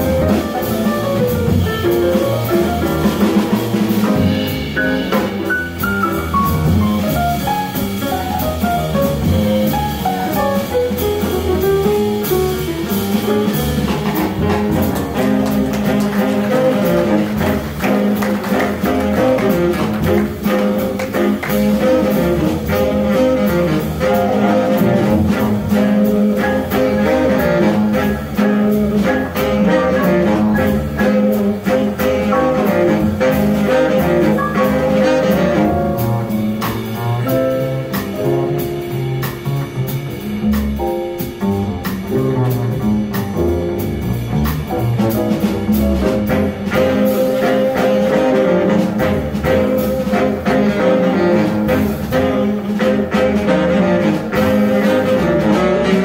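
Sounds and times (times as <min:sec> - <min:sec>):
drum accents: 0:00.0 - 0:56.0
swing jazz band: 0:00.0 - 0:56.0
saxophone line: 0:14.8 - 0:36.5, 0:46.3 - 0:56.0.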